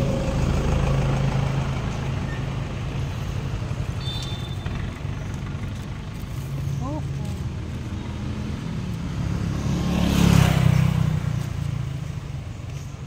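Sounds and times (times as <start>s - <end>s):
vehicle engine idling: 0.0s - 9.5s.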